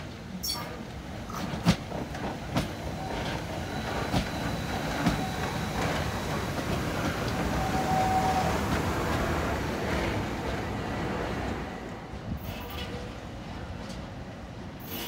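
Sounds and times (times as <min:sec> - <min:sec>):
train rumbling: 0:00.0 - 0:15.0.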